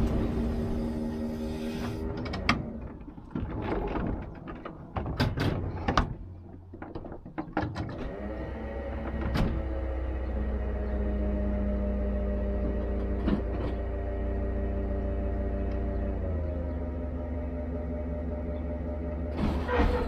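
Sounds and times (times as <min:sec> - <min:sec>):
steady low hum: 0:00.0 - 0:06.8
door mechanism clicks and clunks: 0:00.0 - 0:10.2.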